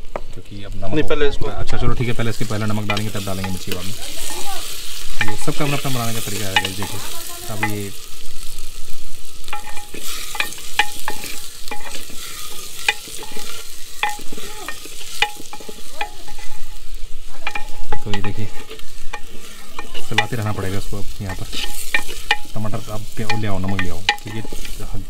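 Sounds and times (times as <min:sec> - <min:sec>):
food sizzling: 0:00.0 - 0:25.0
ladle scraping clay pot: 0:09.4 - 0:24.9.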